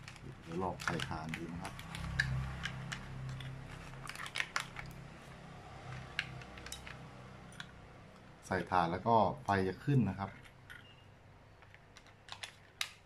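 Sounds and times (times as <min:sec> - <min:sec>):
batteries clicking into plastic compartment: 0:11.6 - 0:13.0.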